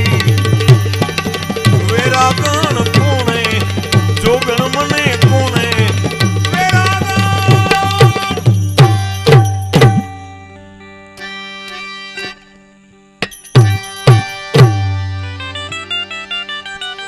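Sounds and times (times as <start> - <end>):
tabla drumming: 0.0 - 10.4, 13.2 - 15.7
hand cymbals: 0.0 - 10.5, 13.2 - 15.4
harmonium melody: 0.0 - 17.0.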